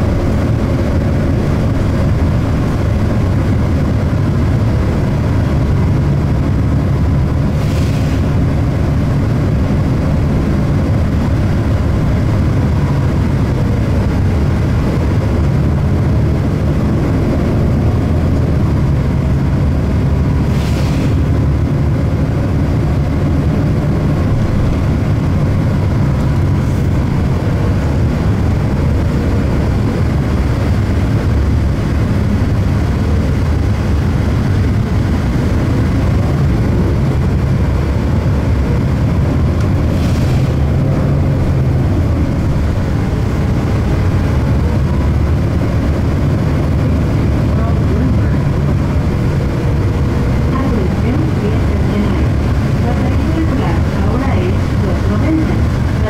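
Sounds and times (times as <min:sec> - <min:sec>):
bus engine and road drone: 0:00.0 - 0:56.0
short air hisses: 0:07.6 - 0:08.2, 0:20.5 - 0:21.2.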